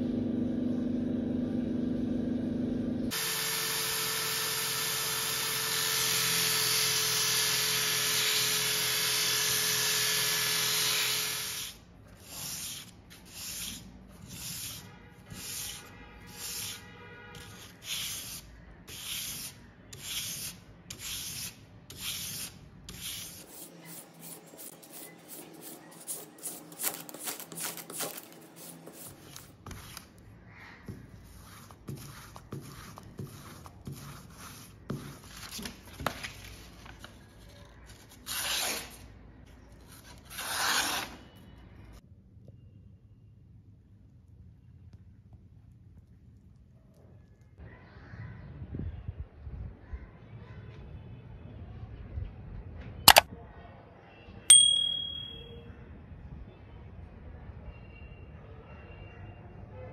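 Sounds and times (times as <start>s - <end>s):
electric drill spinning disc: 3.1s - 11.8s
blade stroking on strop: 9.1s - 16.8s, 17.4s - 30.1s
blade on sharpening stone: 10.7s - 15.8s, 17.4s - 29.5s
knife blade grinding: 54.5s - 55.4s.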